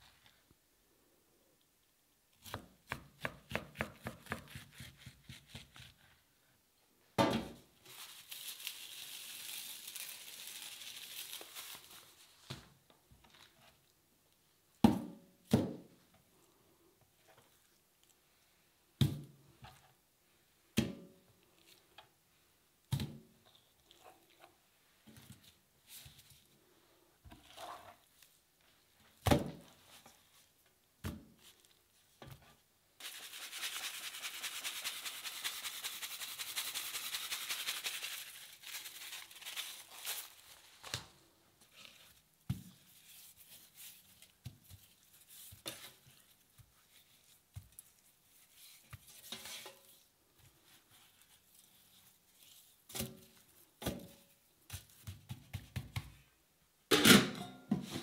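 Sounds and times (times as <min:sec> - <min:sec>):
hands rustling salted fish: 0:07.8 - 0:12.5, 0:33.0 - 0:53.7
salt pouring hiss: 0:08.0 - 0:12.0.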